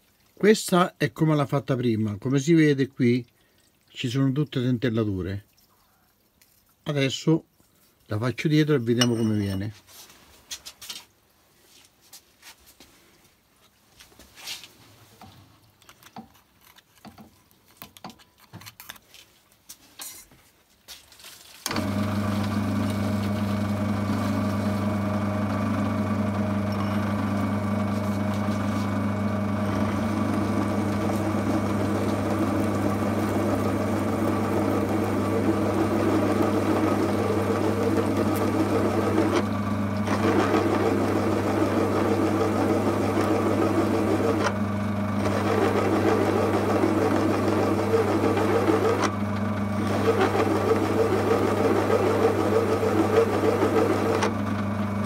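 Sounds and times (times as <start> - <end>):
countersink cutting steel: 9.0 - 9.7
drill press humming: 21.7 - 55.0.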